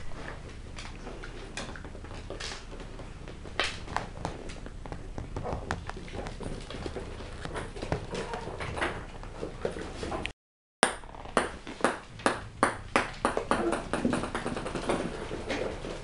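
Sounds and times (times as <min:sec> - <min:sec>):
ball bouncing on wooden floor: 0:03.0 - 0:09.0, 0:10.8 - 0:15.3.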